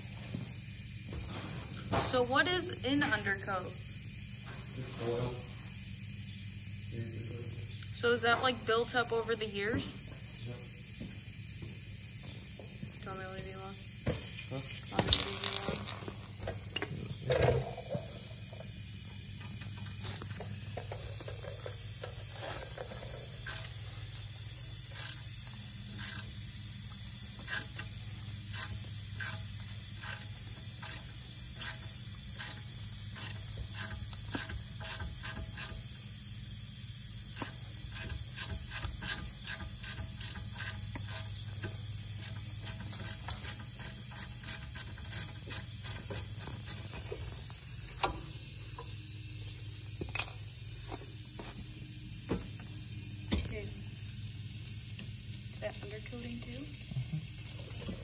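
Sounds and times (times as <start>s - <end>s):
ratchet wrench clicking: 17.9s - 49.0s.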